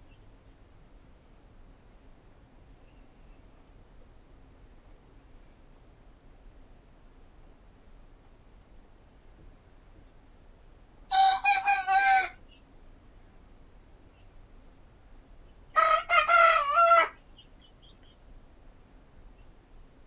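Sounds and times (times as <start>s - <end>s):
roosters crowing: 11.1s - 12.4s, 15.7s - 17.2s.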